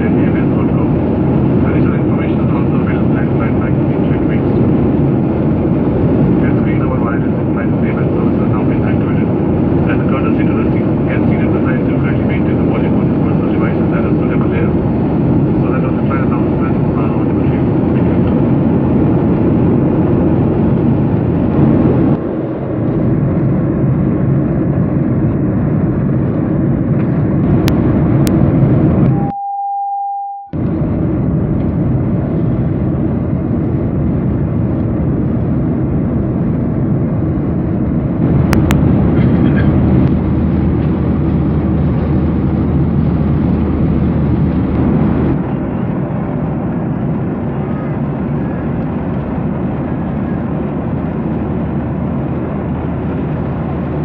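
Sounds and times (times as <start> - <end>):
airplane cabin engine rumble: 0.0 - 54.0
steady beep: 29.1 - 30.6.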